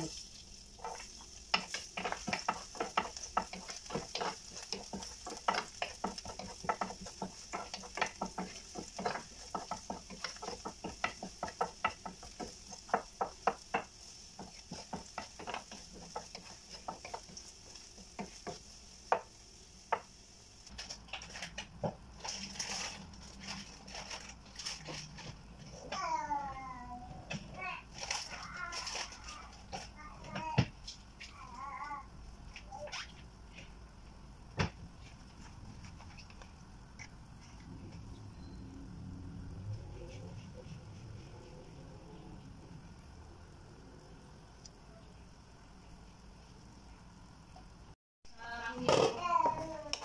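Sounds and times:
food sizzling in hot oil: 0:00.0 - 0:25.2
spatula scraping and knocking pan: 0:00.0 - 0:25.8.

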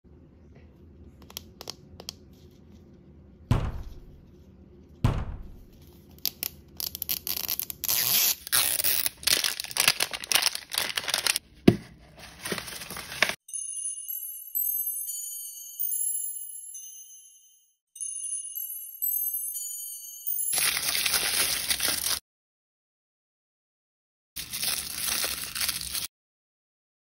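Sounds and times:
thumps: 0:03.5 - 0:04.3, 0:05.0 - 0:05.8
plastic wrapper tearing and crinkling: 0:06.2 - 0:11.4, 0:12.2 - 0:13.4, 0:20.6 - 0:22.2, 0:24.4 - 0:26.1.

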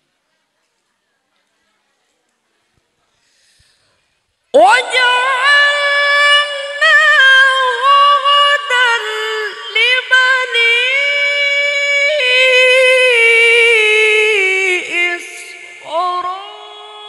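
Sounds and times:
man reciting melodically: 0:04.6 - 0:17.0.

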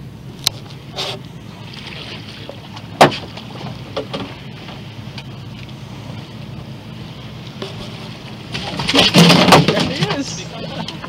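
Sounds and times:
boat engine rumble: 0:00.0 - 0:11.0
landing net knocking on boat: 0:08.6 - 0:10.2.

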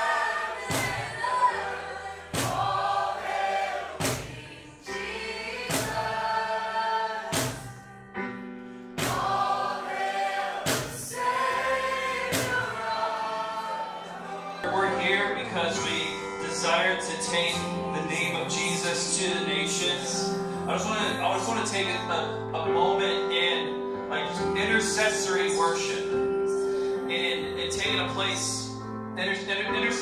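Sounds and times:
group singing over a band: 0:00.0 - 0:07.9, 0:09.0 - 0:14.7
sharp drum hits: 0:00.7 - 0:01.2, 0:02.4 - 0:03.0, 0:04.0 - 0:04.5, 0:05.7 - 0:06.2, 0:07.3 - 0:07.8, 0:09.0 - 0:09.6, 0:10.6 - 0:11.3, 0:12.2 - 0:12.8.

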